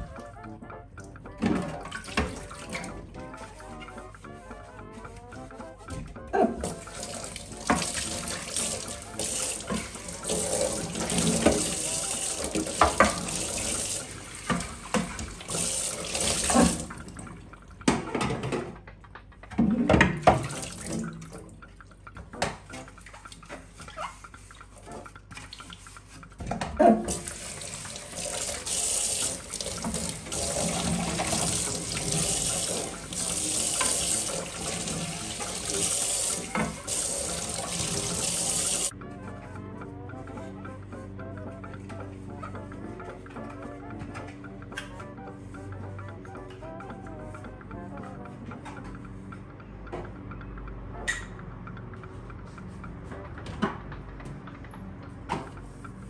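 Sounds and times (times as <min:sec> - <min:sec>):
tap running into steel sink: 0:07.5 - 0:16.9.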